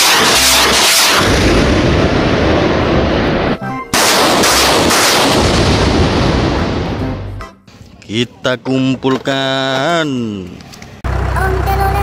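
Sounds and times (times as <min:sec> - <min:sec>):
rocket launcher firing salvo: 0:00.0 - 0:07.2.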